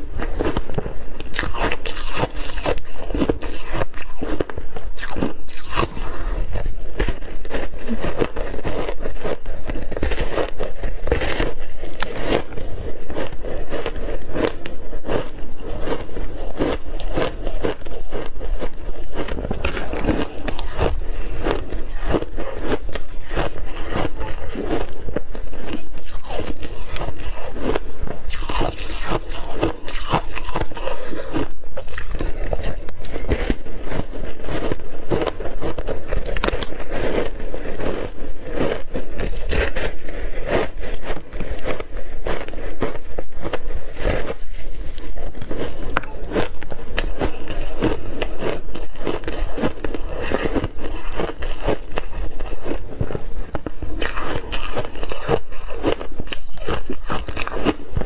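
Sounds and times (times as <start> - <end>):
ice being bitten and chewed: 0.0 - 58.0.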